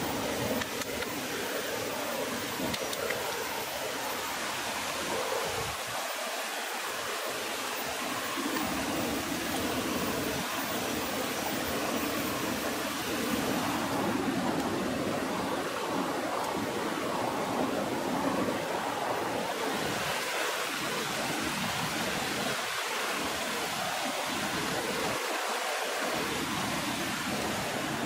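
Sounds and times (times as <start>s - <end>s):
stream water flowing: 0.0s - 28.0s.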